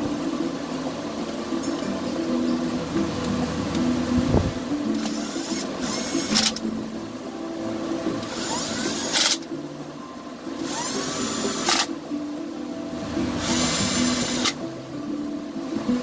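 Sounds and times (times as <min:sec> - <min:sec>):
background music: 0:00.0 - 0:16.0
drill click: 0:04.9 - 0:06.6, 0:08.2 - 0:09.5, 0:10.6 - 0:11.9, 0:13.4 - 0:14.6
cordless drill whirring: 0:05.0 - 0:06.6, 0:08.2 - 0:09.4, 0:10.6 - 0:11.9, 0:13.4 - 0:14.6.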